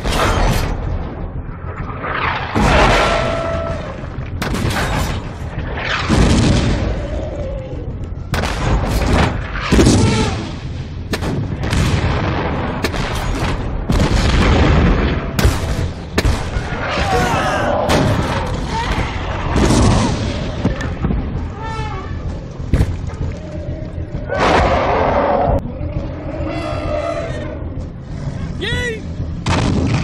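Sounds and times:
cannon booms and explosions: 0.0 - 21.6, 29.1 - 30.0.

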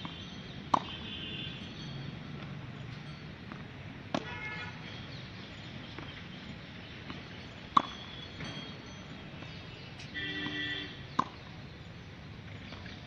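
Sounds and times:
tennis racket striking ball: 0.7 - 1.0, 3.5 - 4.5, 7.0 - 8.7, 11.2 - 11.5.

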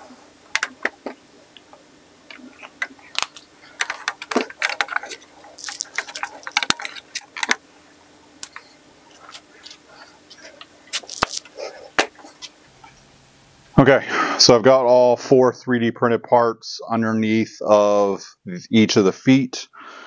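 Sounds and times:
faint steady hum: 0.0 - 20.0
plastic parts clicking and tapping: 0.5 - 1.2, 2.3 - 7.6.

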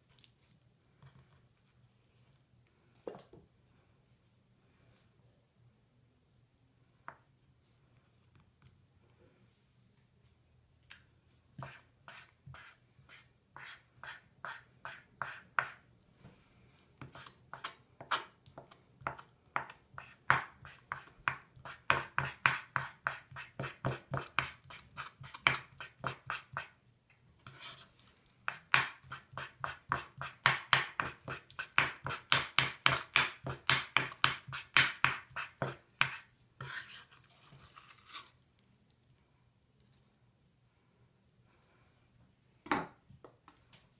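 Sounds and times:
knife chopping on wooden board: 19.1 - 24.6, 28.5 - 36.8
knife scraping board: 32.9 - 38.3.

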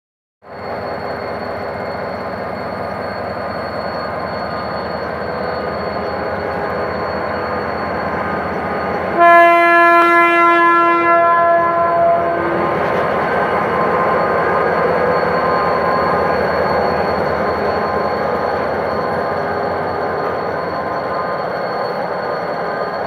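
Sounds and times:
train air horn blast: 9.2 - 12.6.

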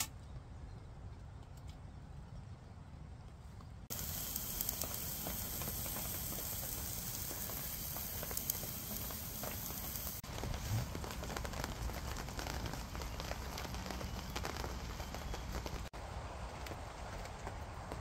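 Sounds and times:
burner flame hissing and crackling: 3.8 - 18.0.

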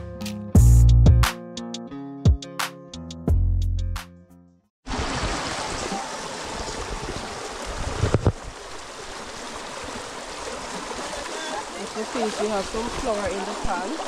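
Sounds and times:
running river water: 4.8 - 14.0.

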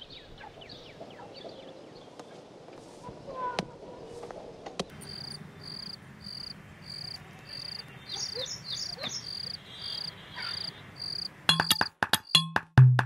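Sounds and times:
cricket chirping: 4.9 - 11.9
percussive music with wood-block clicks: 11.5 - 13.0.

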